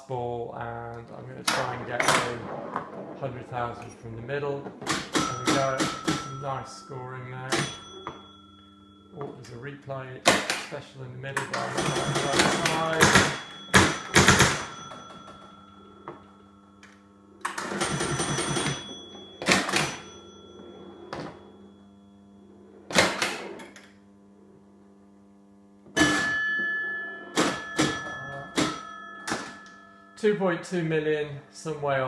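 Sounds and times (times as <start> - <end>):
scoring bells ringing: 0.7 - 10.1, 11.2 - 22.9, 26.0 - 32.0
pinball flippers and relays clacking: 1.4 - 2.4, 4.6 - 8.4, 11.4 - 15.8, 16.8 - 20.5, 26.0 - 29.8.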